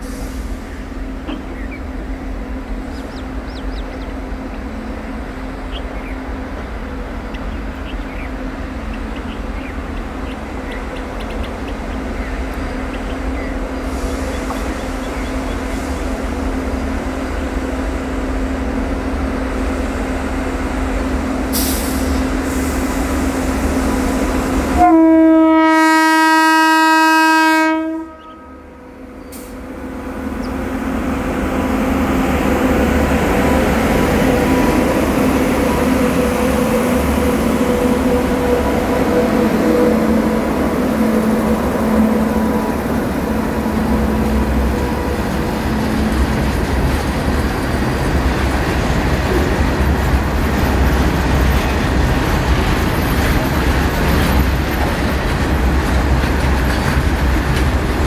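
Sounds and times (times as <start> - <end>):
train wheels rumbling on rail: 0.0 - 58.0
locomotive air horn blast: 24.5 - 29.6, 35.4 - 46.2.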